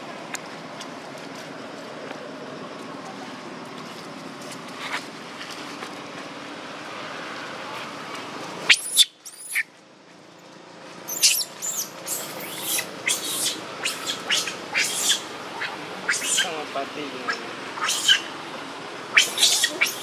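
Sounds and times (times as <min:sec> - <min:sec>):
baby monkey screaming: 0:08.7 - 0:09.6, 0:11.1 - 0:16.6, 0:17.2 - 0:18.4, 0:19.1 - 0:20.0.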